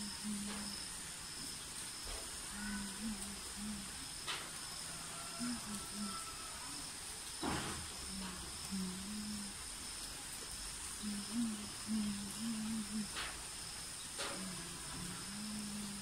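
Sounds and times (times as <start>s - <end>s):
insect chorus: 0.0s - 16.0s
faint clicks: 14.2s - 15.9s.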